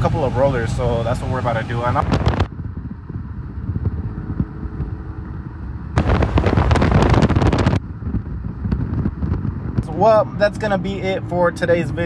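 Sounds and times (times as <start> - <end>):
car engine and road rumble: 0.0 - 12.0
rough rush with crackle: 6.0 - 9.9.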